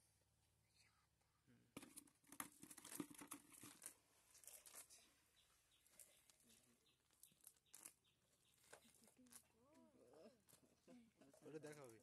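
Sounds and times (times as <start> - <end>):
net rustling and scraping on concrete: 1.8 - 5.1, 5.8 - 9.5.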